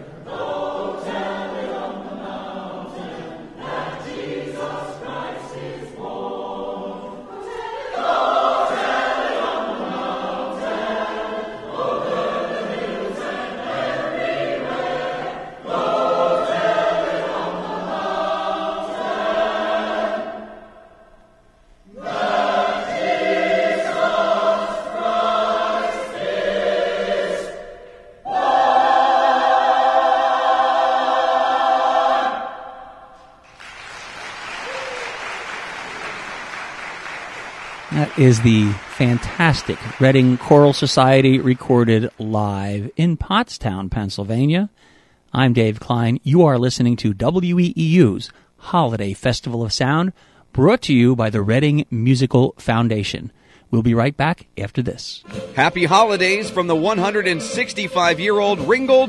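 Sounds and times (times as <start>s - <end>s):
choir singing: 0.0s - 21.2s, 21.8s - 33.4s, 35.4s - 42.8s, 55.2s - 59.0s.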